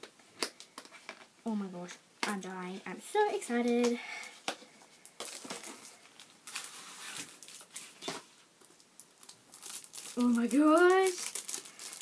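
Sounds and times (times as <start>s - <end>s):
packaging rustling and crinkling: 4.4s - 12.0s.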